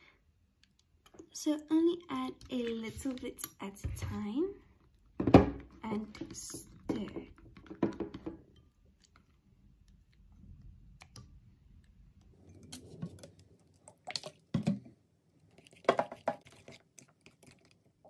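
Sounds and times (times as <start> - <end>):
spoon stirring thick mixture: 5.7 - 18.0.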